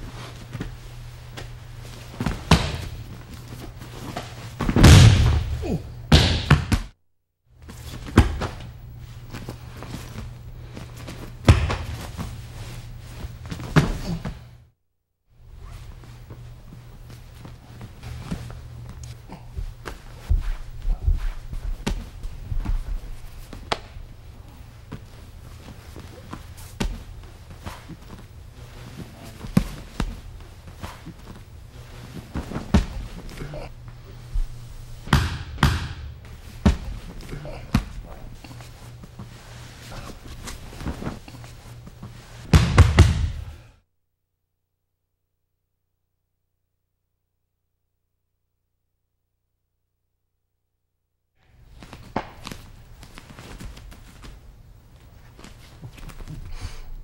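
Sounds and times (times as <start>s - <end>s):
feet shuffling on a mat: 0.0s - 4.9s, 7.6s - 14.5s, 15.4s - 35.1s, 36.2s - 42.6s, 51.4s - 57.0s
steady low hum: 0.0s - 7.0s, 7.6s - 14.8s, 15.4s - 43.8s
bodies thudding on a mat: 1.4s - 6.9s, 7.7s - 14.5s, 17.1s - 24.0s, 24.6s - 33.4s, 34.3s - 43.6s.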